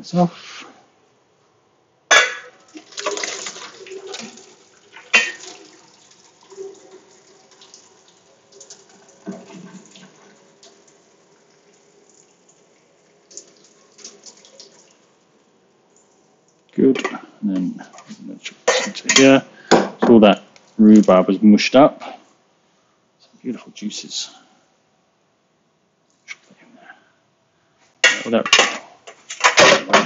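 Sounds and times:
water splashing out of pot: 2.1 - 15.0.

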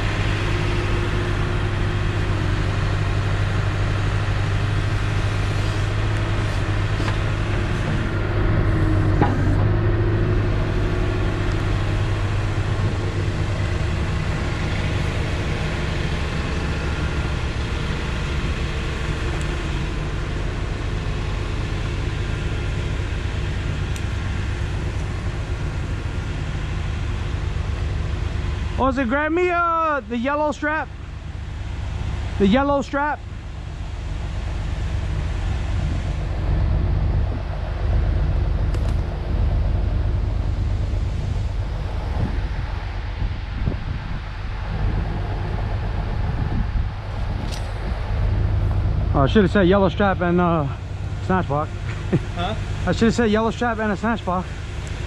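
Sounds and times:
truck engine idling: 0.0 - 55.0.

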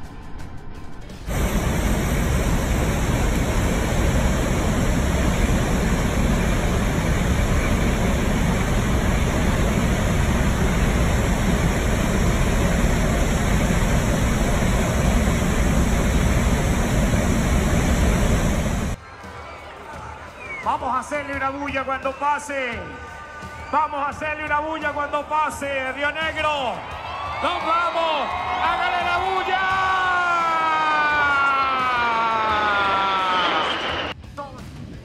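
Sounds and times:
aircraft engine noise: 1.2 - 19.0
wind rushing in aircraft hold: 1.3 - 19.0.

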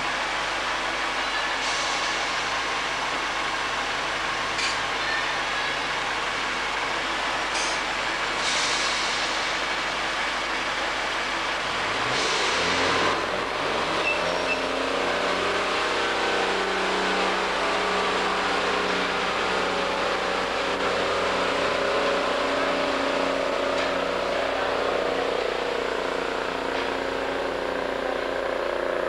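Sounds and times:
diesel train engine pulling away: 0.0 - 29.0
short air hisses: 8.4 - 9.6.

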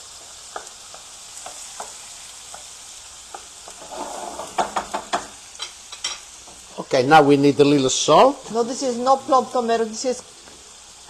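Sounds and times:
food sizzling in a pan: 0.0 - 11.0
utensil clinking and scraping pan: 3.7 - 5.2.

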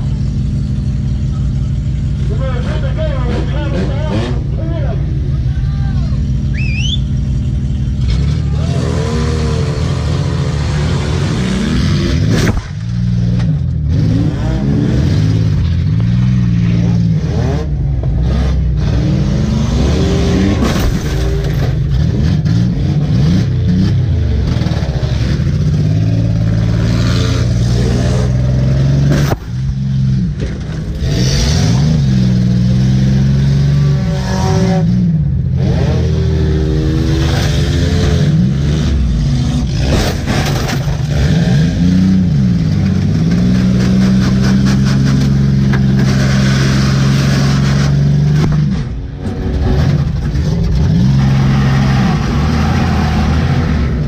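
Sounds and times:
car engine revving: 0.0 - 54.0
collision bangs and metal clatter: 39.7 - 41.4.

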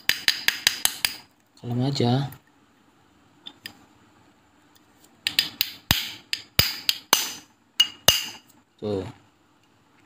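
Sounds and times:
small hammer tapping metal punch: 0.0 - 1.2, 5.3 - 8.4.

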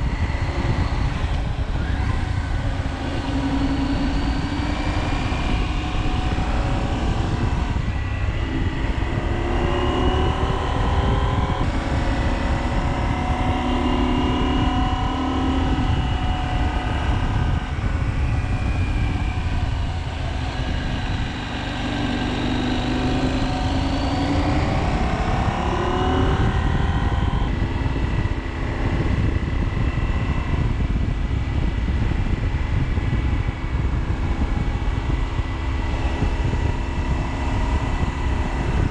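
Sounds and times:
motorcycle engine running: 0.0 - 38.9
wind on microphone: 0.0 - 38.9.

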